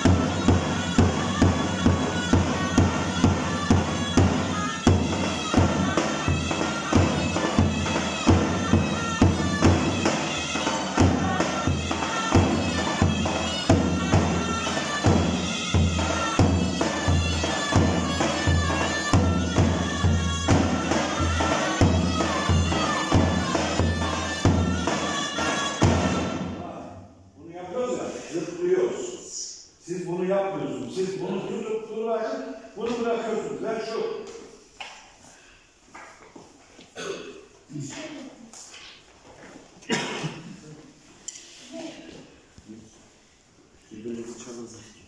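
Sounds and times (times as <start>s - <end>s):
shrill reed pipe melody: 0.0s - 26.5s
steady drum beat: 0.0s - 26.6s.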